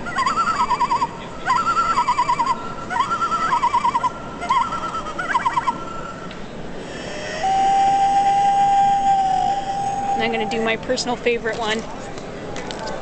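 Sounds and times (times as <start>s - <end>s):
loon calls from small speaker: 0.0s - 6.1s, 6.8s - 10.8s.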